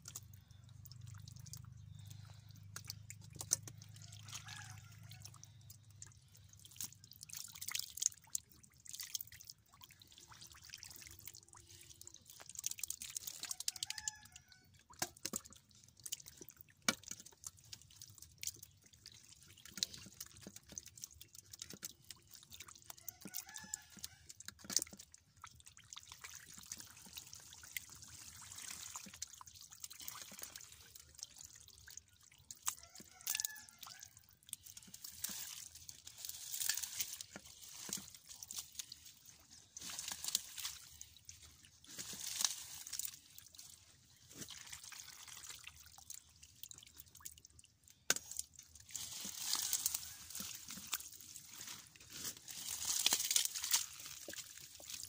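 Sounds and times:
water dripping and pouring: 0.0 - 55.0
hands splashing in muddy water: 14.9 - 47.3, 47.9 - 55.0.

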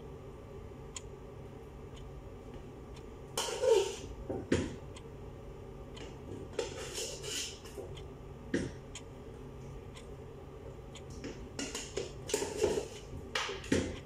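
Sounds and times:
metal spoon scraping pots: 3.4 - 4.1, 6.5 - 7.8, 11.6 - 13.1.

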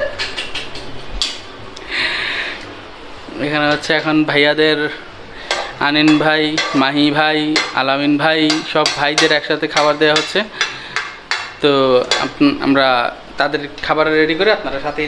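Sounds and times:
voices: 3.3 - 10.8, 11.6 - 15.0
dishes and cutlery clinking: 5.5 - 7.9, 8.5 - 12.4.

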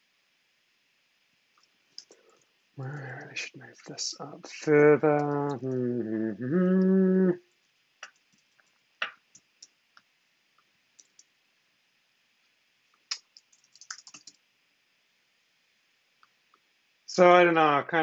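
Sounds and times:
computer keyboard typing: 11.0 - 11.3, 13.1 - 14.4.

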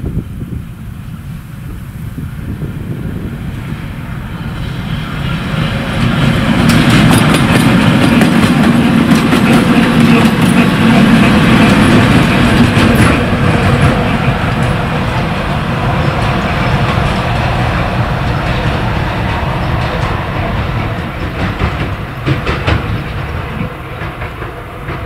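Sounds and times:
diesel engine drone: 0.0 - 25.0
wheels clicking over rail joints: 5.6 - 25.0.

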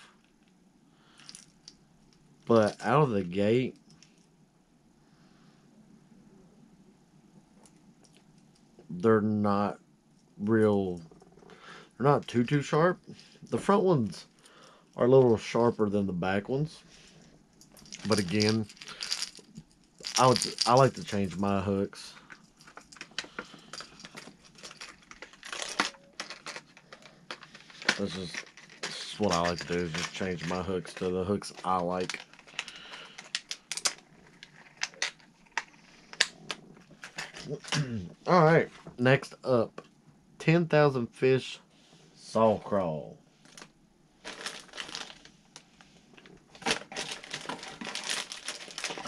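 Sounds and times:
packages clattering and rustling: 17.6 - 21.4, 22.1 - 37.9, 43.4 - 49.0
plastic packages clicking: 22.3 - 37.8, 43.6 - 45.3, 46.5 - 49.0.

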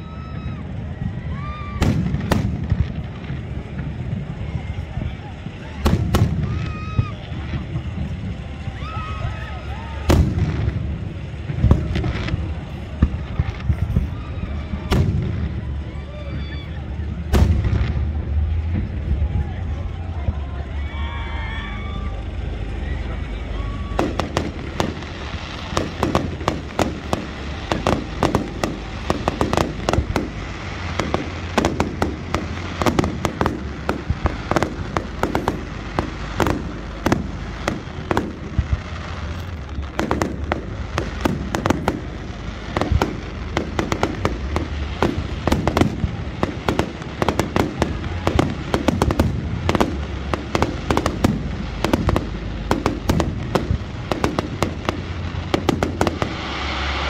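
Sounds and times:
firework shells bursting: 22.2 - 57.0.

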